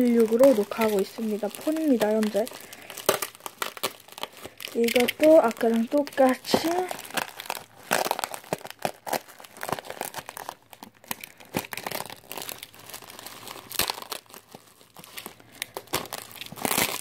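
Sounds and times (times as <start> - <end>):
bubble wrap crinkling: 0.0 - 17.0.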